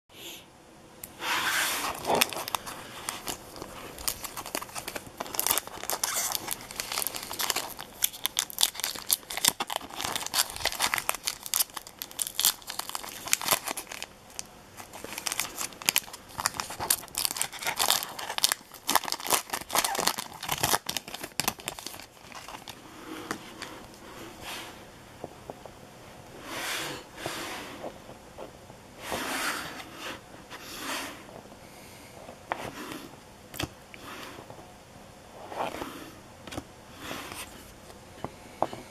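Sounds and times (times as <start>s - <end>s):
plastic wrapper crinkling and tearing: 1.8s - 22.8s.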